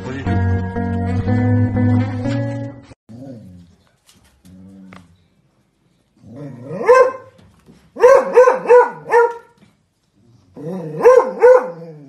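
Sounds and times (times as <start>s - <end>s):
dog barking: 6.6s - 7.4s, 8.0s - 9.6s, 10.9s - 11.9s.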